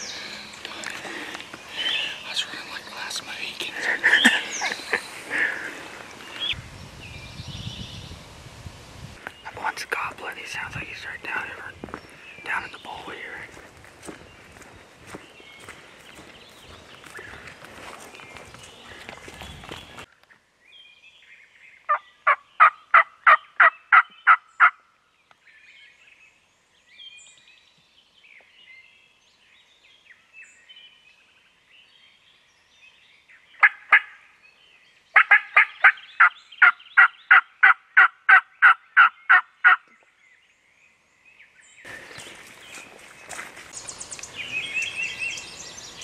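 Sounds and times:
faint songbirds chirping: 0.0s - 46.0s
turkey yelping: 35.2s - 36.3s.

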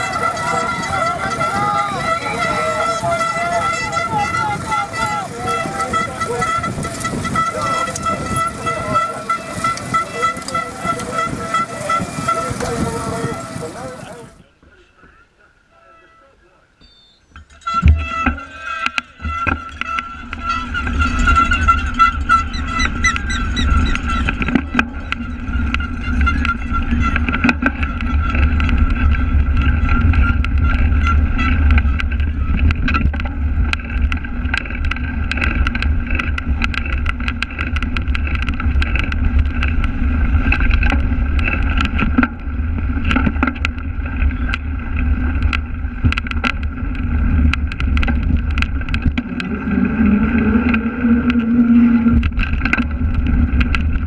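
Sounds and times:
wind and tyres rumbling: 0.0s - 15.5s, 16.8s - 54.0s
bike knocks and rattles: 17.3s - 54.0s.

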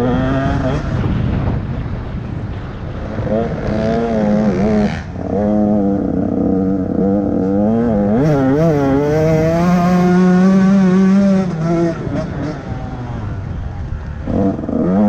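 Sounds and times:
motocross bike engine revving: 0.0s - 1.6s, 2.9s - 13.6s, 14.2s - 15.0s.

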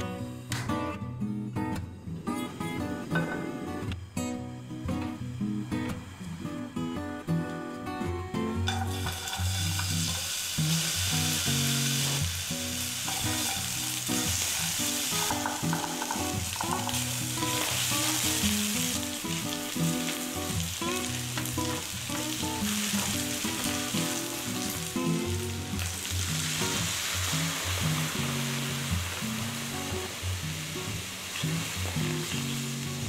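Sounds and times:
onions sizzling in oil: 8.6s - 33.0s.

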